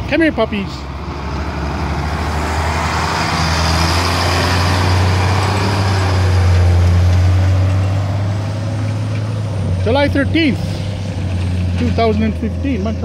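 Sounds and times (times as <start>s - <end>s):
diesel truck engine driving past: 0.0s - 13.0s
tyres on gravel: 5.5s - 13.0s.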